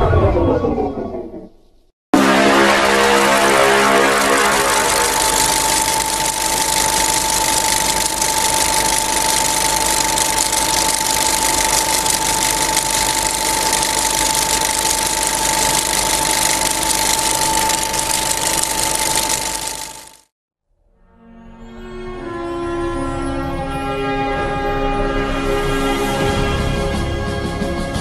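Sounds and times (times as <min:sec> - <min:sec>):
music: 0:02.2 - 0:05.6, 0:20.7 - 0:28.0
mechanical running noise with whine: 0:02.2 - 0:20.3.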